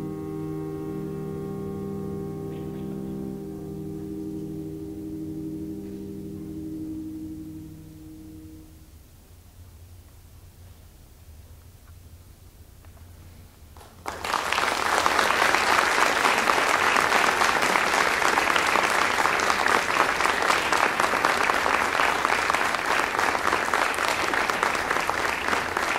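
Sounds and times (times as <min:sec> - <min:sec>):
audience applauding: 0:13.8 - 0:25.9.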